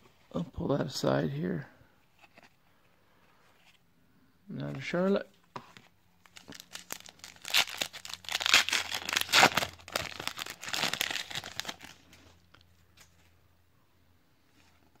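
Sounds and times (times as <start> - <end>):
foil wrapper tearing and crinkling: 6.4 - 12.0.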